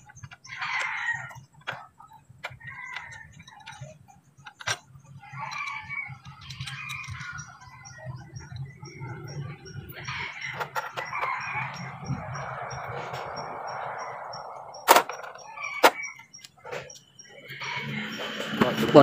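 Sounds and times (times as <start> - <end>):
sharp clicks: 0.0 - 17.2
chickens clucking: 0.0 - 19.0
rooster crowing: 0.4 - 1.5, 2.5 - 3.8, 5.2 - 8.0, 8.6 - 14.8, 17.4 - 18.3.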